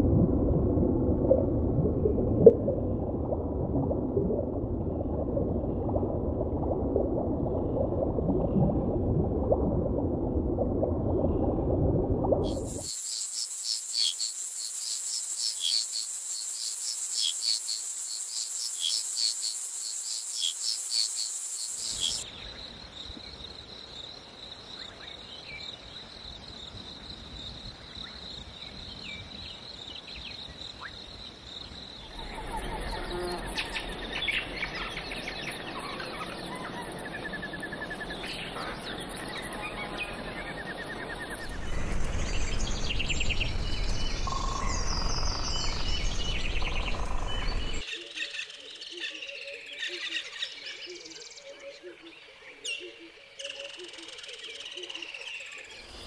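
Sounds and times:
shrill insect chorus: 12.5 - 24.1, 39.1 - 47.8
high insect whine: 12.5 - 24.9, 30.8 - 35.4, 40.2 - 47.8.

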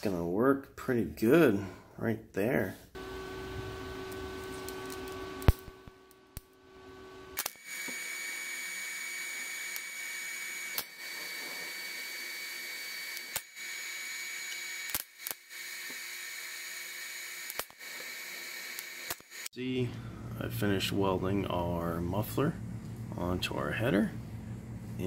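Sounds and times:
welding arc hissing: 3.0 - 19.5
high whine: 3.0 - 25.0
sharp clicks: 14.5 - 15.4.

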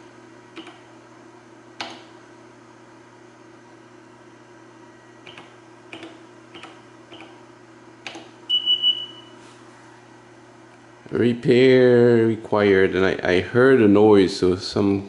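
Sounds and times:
low steady hum: 0.0 - 15.0
high electronic beeps: 8.5 - 9.3.

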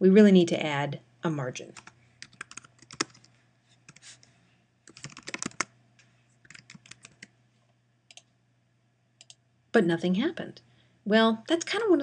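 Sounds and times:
typing on computer keyboard: 1.8 - 3.3, 4.9 - 5.7, 6.5 - 7.3.

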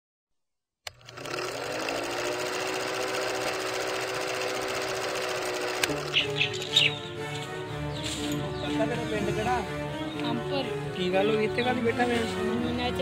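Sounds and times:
film projector clatter: 0.9 - 6.8.

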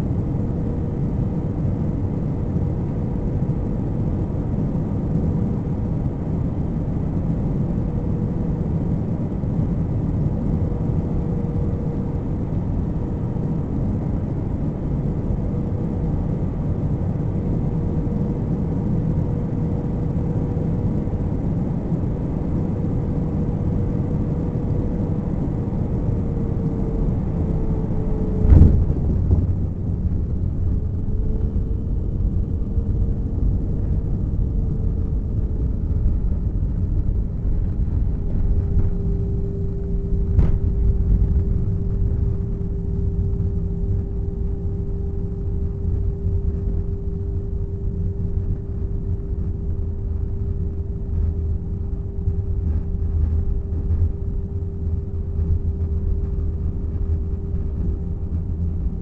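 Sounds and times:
airliner cabin rumble: 0.0 - 59.0
engine hum tone: 0.0 - 59.0
thump: 28.4 - 29.6.

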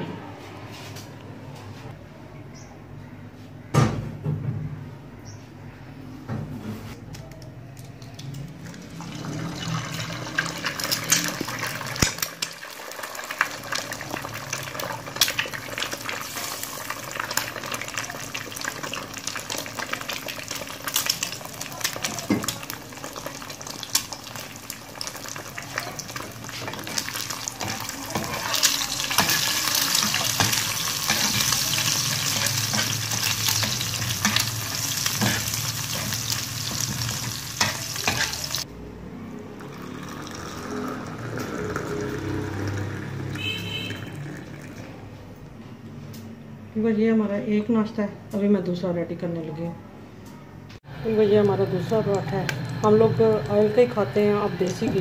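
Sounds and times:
egg sizzling in hot oil: 8.8 - 38.7
spatula scraping pan: 26.5 - 38.6.

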